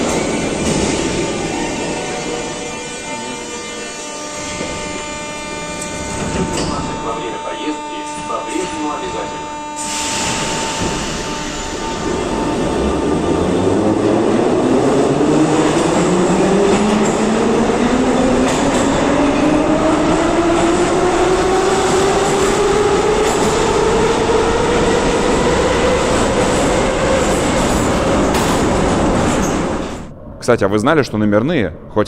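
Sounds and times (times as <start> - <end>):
traction motor whine rising: 0.0 - 28.4
train wheels on rails: 0.0 - 30.1.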